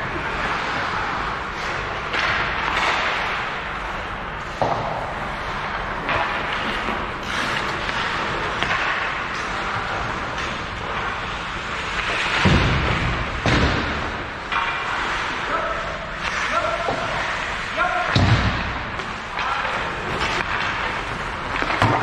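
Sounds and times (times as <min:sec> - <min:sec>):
skates scraping ice: 0:00.0 - 0:18.2, 0:18.8 - 0:22.0
hockey stick or puck knock: 0:04.5 - 0:05.1, 0:06.0 - 0:09.6, 0:18.1 - 0:22.0.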